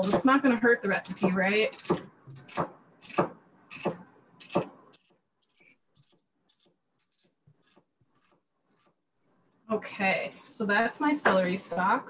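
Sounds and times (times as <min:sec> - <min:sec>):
knife chopping on wooden board: 0:01.1 - 0:04.8.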